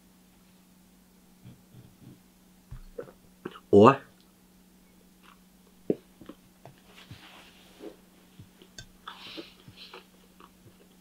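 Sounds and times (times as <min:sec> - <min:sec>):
faint steady hum: 0:00.0 - 0:11.0
man chewing: 0:07.8 - 0:11.0.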